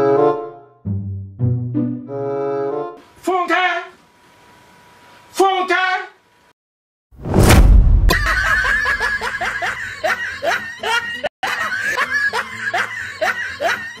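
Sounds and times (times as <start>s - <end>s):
laughter sound effect: 8.1s - 14.0s.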